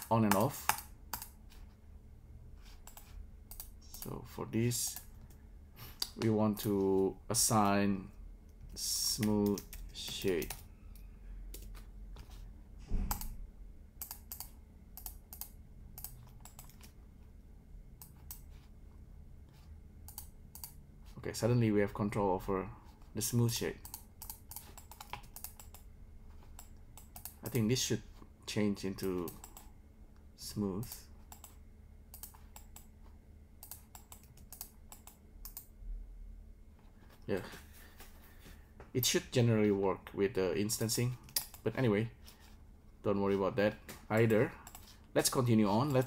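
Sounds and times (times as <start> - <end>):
computer keys clicking: 0.0 - 1.4, 2.8 - 4.2, 8.5 - 11.9, 13.1 - 13.3, 14.0 - 17.0, 18.0 - 18.5, 20.1 - 20.8, 23.8 - 27.6, 29.0 - 29.7, 30.8 - 32.9, 33.6 - 35.7, 40.8 - 41.6, 44.1 - 45.0
keyboard typing: 0.0 - 1.6, 2.8 - 4.1, 8.6 - 10.7, 13.1 - 13.3, 14.0 - 17.0, 20.1 - 20.8, 23.8 - 25.8, 26.4 - 27.6, 29.0 - 29.7, 30.8 - 32.9, 33.6 - 35.7, 44.1 - 45.0
steady low hum: 0.0 - 46.0.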